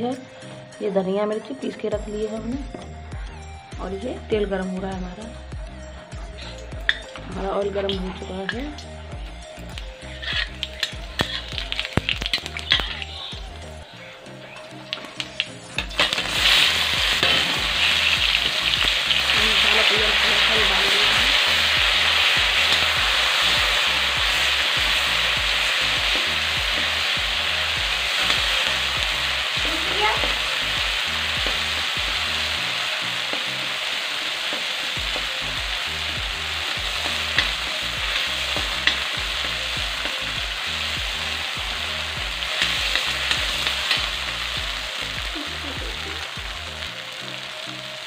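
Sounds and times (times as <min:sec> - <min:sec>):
chilli sizzling in hot oil: 0:06.3 - 0:48.0.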